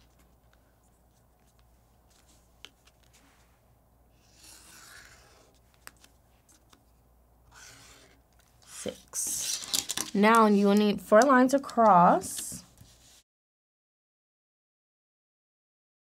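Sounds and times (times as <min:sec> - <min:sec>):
marker scratching on paper: 0:04.2 - 0:05.6, 0:07.5 - 0:09.5.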